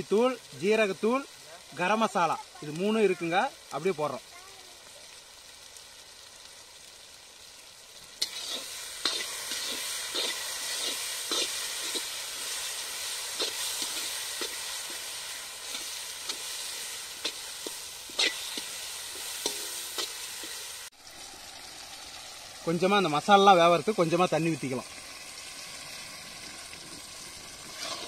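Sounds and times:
food sizzling in a pan: 0:00.0 - 0:28.0
metal spatula scraping a pan: 0:08.2 - 0:20.7, 0:27.7 - 0:28.0.

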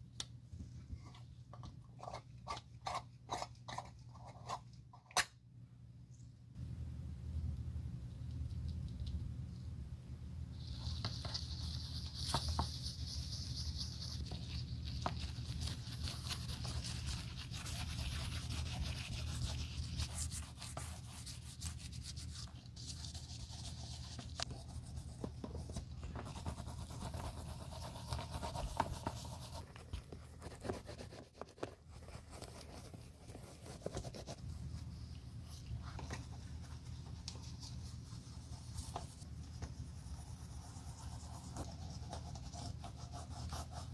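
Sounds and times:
steady low hum: 0:00.0 - 0:43.9.

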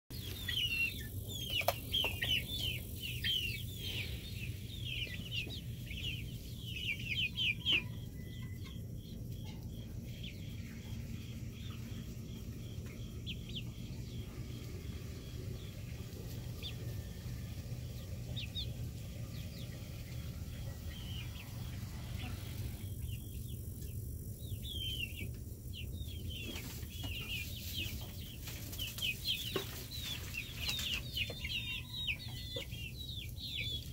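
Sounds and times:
young hens chirping and clucking: 0:00.1 - 0:33.9
steady low hum: 0:00.2 - 0:33.9.

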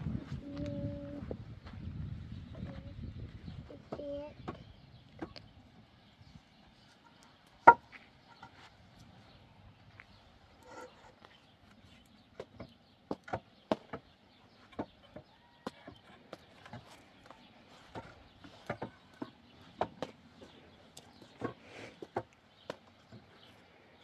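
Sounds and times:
hollow knocks of wooden poles: 0:03.9 - 0:05.4, 0:07.0 - 0:08.6, 0:12.4 - 0:23.3.

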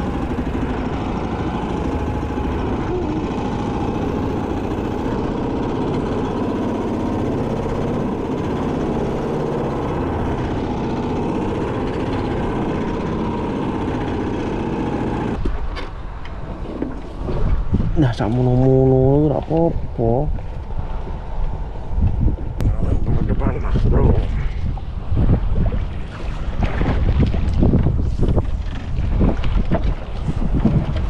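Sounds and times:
boat engine running: 0:00.0 - 0:15.4, 0:16.5 - 0:31.0
water: 0:00.0 - 0:31.0
wind: 0:00.0 - 0:31.0.

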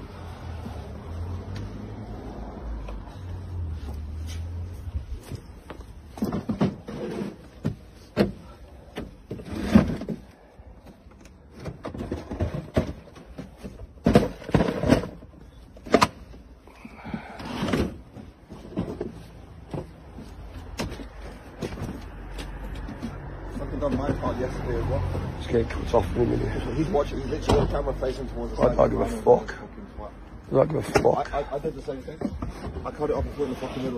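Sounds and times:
knocks and clatter in van: 0:05.2 - 0:16.4, 0:17.5 - 0:24.5.

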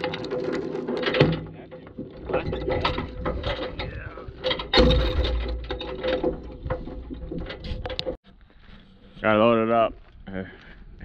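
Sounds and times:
chain clanking on wooden deck: 0:00.0 - 0:08.2
heavy chain clunk: 0:00.0 - 0:08.2.

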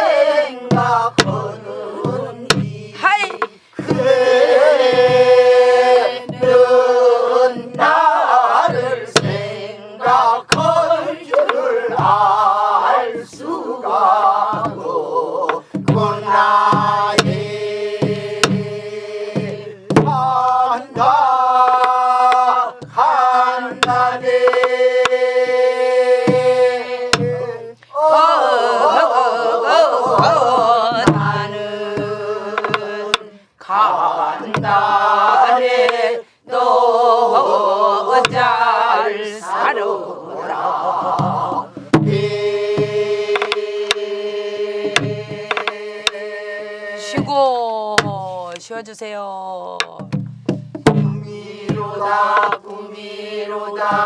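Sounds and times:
group singing folk song in unison: 0:00.0 - 0:48.2, 0:50.2 - 0:54.0
barrel drum struck with stick: 0:00.7 - 0:06.7, 0:08.7 - 0:12.4, 0:15.5 - 0:23.1, 0:23.7 - 0:25.2, 0:26.2 - 0:27.5, 0:30.0 - 0:33.3, 0:34.4 - 0:34.9, 0:38.2 - 0:38.5, 0:41.1 - 0:44.1, 0:44.8 - 0:46.2, 0:49.8 - 0:52.7.

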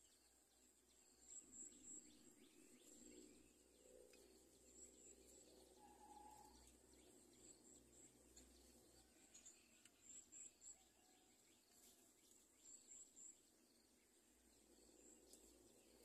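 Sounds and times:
distant bird chirps: 0:01.0 - 0:13.4.

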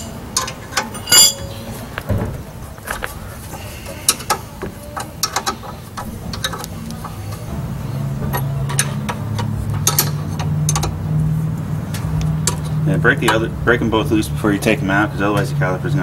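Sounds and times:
metal tools clinking: 0:00.0 - 0:02.0
low steady hum: 0:00.0 - 0:16.0.

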